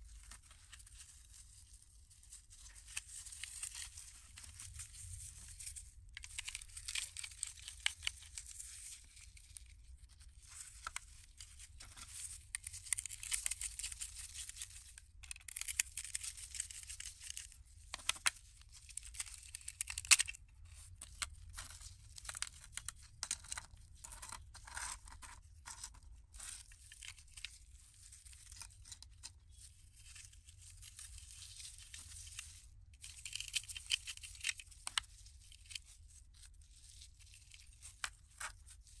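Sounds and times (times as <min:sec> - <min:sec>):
rustling: 0:00.0 - 0:14.9.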